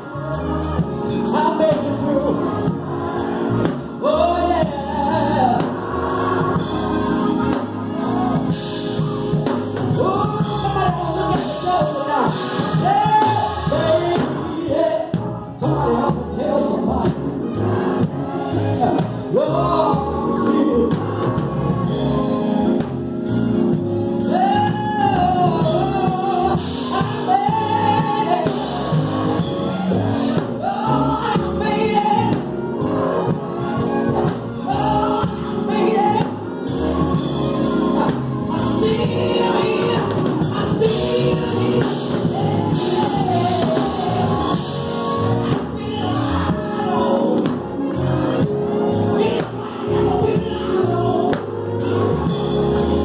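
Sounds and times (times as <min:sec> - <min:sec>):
solo voice singing: 0:00.0 - 0:23.0, 0:24.0 - 0:53.0
electric keyboard: 0:00.0 - 0:53.0
gospel choir singing: 0:00.0 - 0:53.0.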